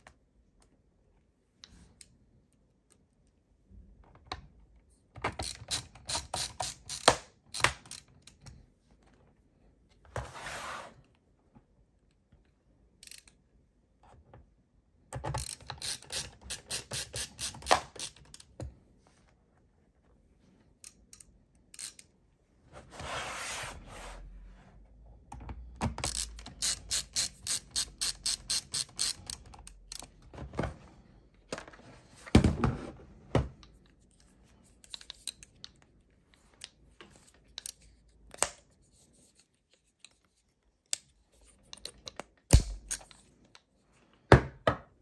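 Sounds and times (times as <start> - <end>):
ratcheting screwdriver clicking: 5.4 - 8.4, 15.4 - 18.5, 20.8 - 22.1, 26.0 - 30.1, 34.8 - 35.8, 41.6 - 43.2.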